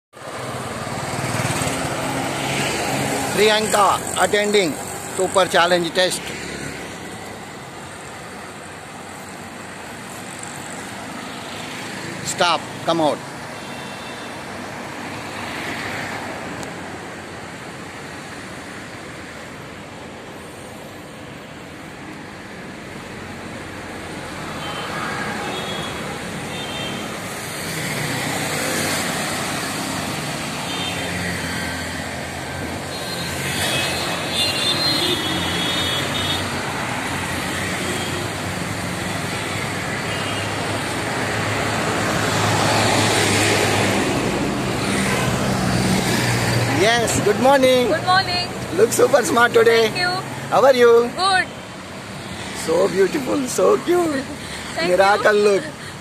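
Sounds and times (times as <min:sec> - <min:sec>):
bus passing close by: 0:00.2 - 0:08.8, 0:22.6 - 0:34.3, 0:35.0 - 0:50.6
road traffic passing: 0:00.2 - 0:56.0.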